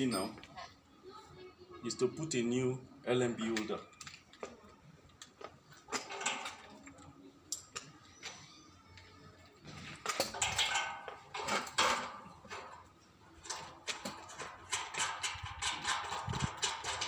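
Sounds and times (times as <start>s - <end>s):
rustling and scraping: 9.3s - 17.0s.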